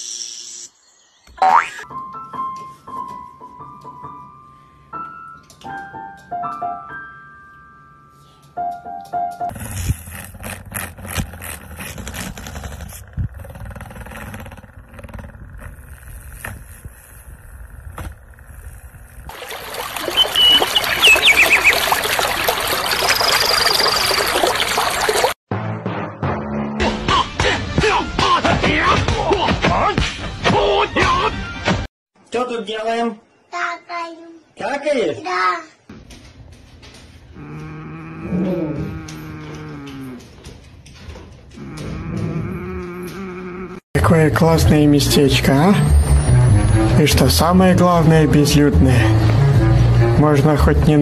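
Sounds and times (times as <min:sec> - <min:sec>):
water trickling: 0:19.3 - 0:25.4
birds chirping: 0:19.5 - 0:25.3
thin high whistle: 0:20.1 - 0:21.8.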